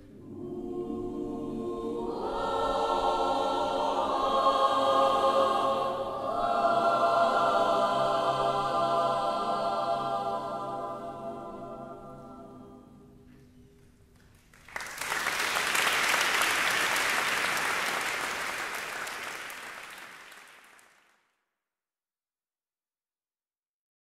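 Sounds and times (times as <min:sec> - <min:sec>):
choir holding a chord: 0:00.0 - 0:13.3
audience applause: 0:14.2 - 0:21.2.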